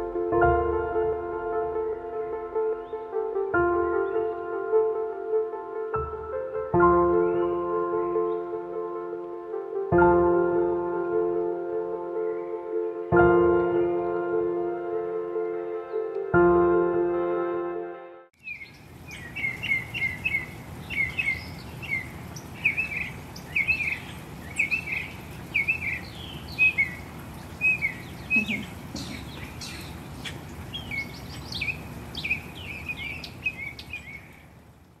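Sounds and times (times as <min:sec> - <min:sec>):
songbird whistling: 0:18.4 - 0:27.0, 0:27.6 - 0:34.4
outdoor hiss: 0:18.4 - 0:35.0.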